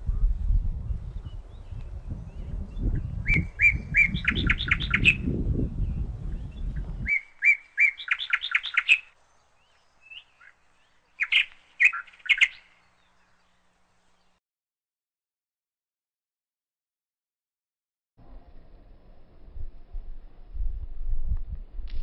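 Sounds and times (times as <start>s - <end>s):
songbird singing: 0.0s - 14.4s
low rumble: 18.2s - 22.0s.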